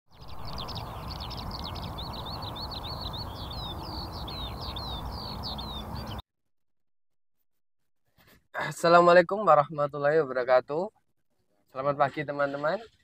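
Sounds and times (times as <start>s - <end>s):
birds chirping: 0.1s - 6.2s.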